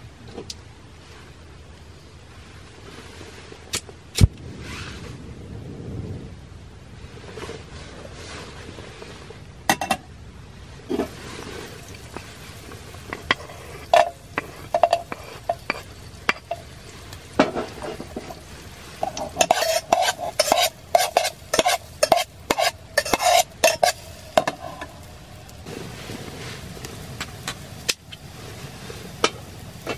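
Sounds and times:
pot clinking down: 10.9s - 18.4s, 19.0s - 24.9s
metal utensil scraping a pot: 10.9s - 25.0s
garlic sizzling in oil: 10.9s - 29.9s.

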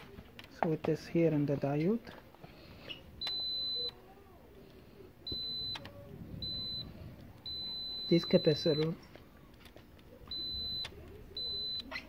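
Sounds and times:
multimeter high-pitched beeps: 3.2s - 4.0s, 5.3s - 9.0s, 10.3s - 12.0s.

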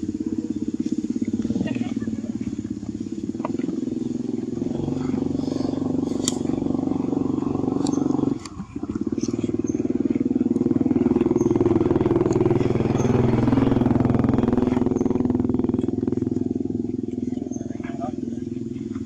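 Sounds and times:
small engine running: 0.0s - 19.0s.

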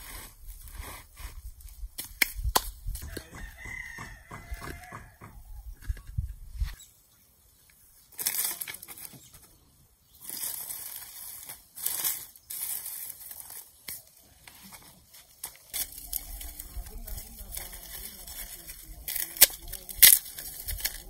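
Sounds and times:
scraping and rustling of leaves: 0.0s - 2.2s, 5.8s - 21.0s
rocks knocking: 3.0s - 5.5s.

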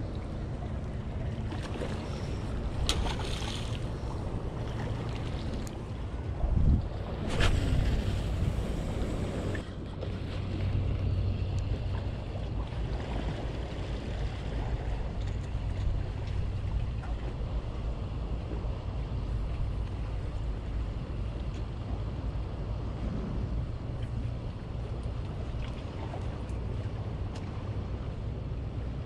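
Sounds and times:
steady low hum: 0.0s - 29.0s
wind buffeting microphone: 1.8s - 21.3s.

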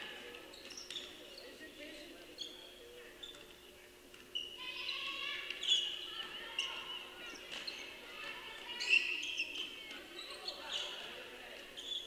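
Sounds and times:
shoes squeaking on gym floor: 0.4s - 1.6s, 2.3s - 3.6s, 8.7s - 12.0s.

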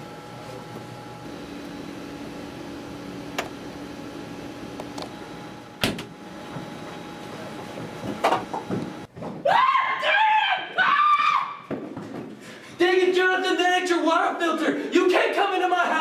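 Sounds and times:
refrigerator door thump: 5.8s - 6.1s.

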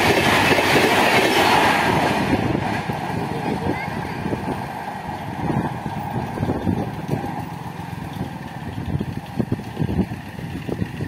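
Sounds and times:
steady low rumble: 0.0s - 11.0s
motorcycle engine idling: 5.8s - 11.0s.

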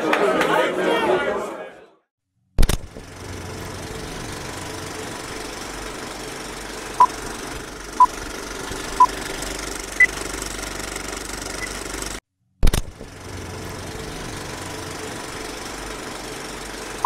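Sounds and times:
film projector whirring: 3.0s - 12.2s, 13.0s - 17.0s.

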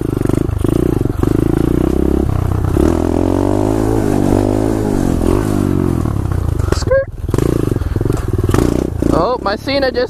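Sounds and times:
motorbike engine revving: 0.0s - 10.0s.

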